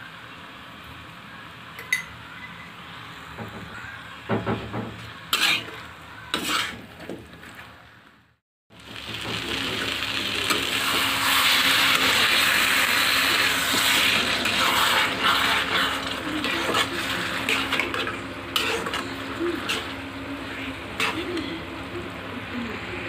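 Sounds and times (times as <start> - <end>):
vegetables sizzling in hot oil: 8.7 - 21.9.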